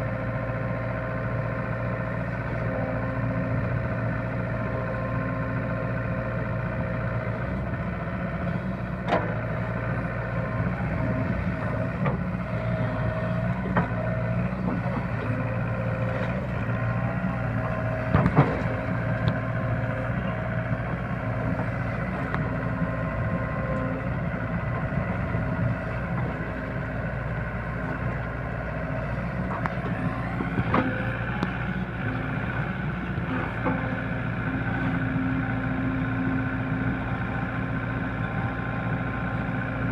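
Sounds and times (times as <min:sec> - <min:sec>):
excavator diesel engine running: 0:00.0 - 0:39.9
excavator digging in wet mud: 0:05.0 - 0:39.7.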